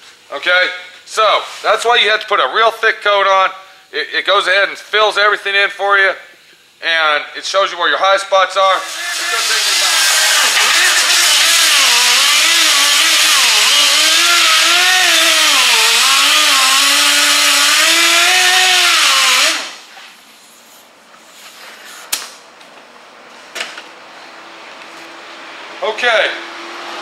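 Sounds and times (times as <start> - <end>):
sander whining on filler: 8.8 - 19.9.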